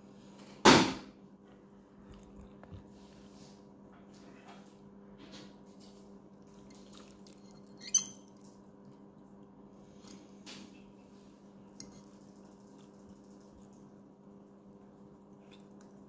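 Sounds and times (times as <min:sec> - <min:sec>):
fork scraping ceramic dish: 0:11.8 - 0:12.1.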